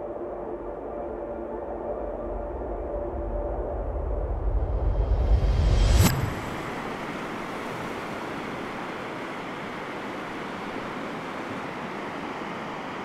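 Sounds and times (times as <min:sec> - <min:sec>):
wind: 0:00.0 - 0:13.0
distant surf: 0:06.0 - 0:13.0.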